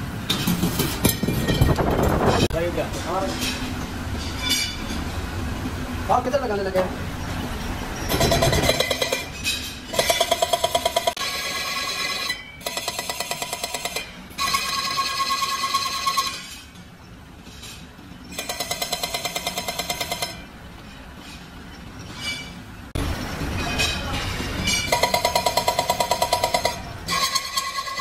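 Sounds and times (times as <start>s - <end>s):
metallic ringing screech: 11.2s - 16.7s, 22.0s - 22.6s, 23.2s - 25.4s, 27.1s - 28.0s.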